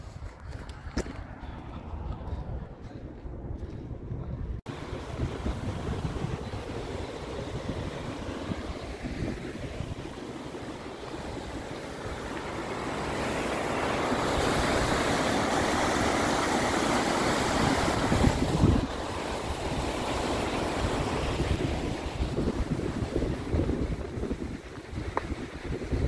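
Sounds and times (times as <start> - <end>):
wind buffeting microphone: 0.0 - 26.0
river water rushing over rocks: 4.7 - 22.5.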